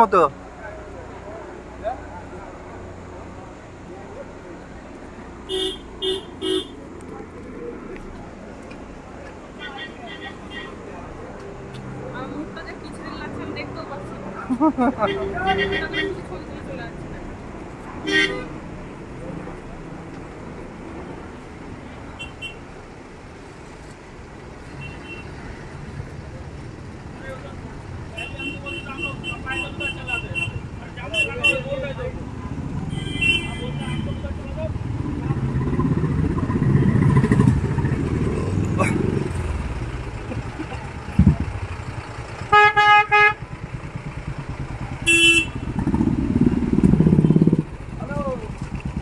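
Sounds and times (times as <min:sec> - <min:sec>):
road traffic rumble: 0:00.0 - 0:49.0
vehicle horn beeping: 0:05.5 - 0:06.8, 0:15.0 - 0:16.2, 0:18.0 - 0:18.5, 0:28.1 - 0:31.8, 0:32.9 - 0:34.4, 0:42.5 - 0:43.4, 0:45.0 - 0:45.8
motorcycle engine running: 0:35.6 - 0:49.0
second horn tooting: 0:42.5 - 0:43.4.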